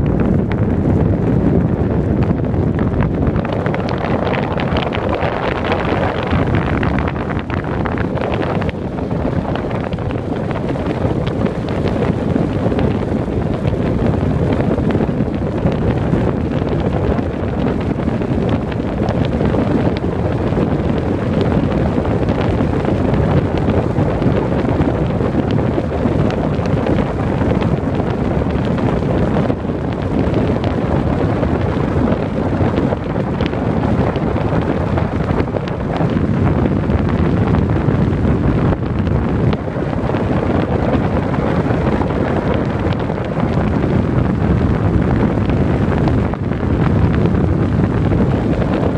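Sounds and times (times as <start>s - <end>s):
wind buffeting microphone: 0.0s - 48.9s.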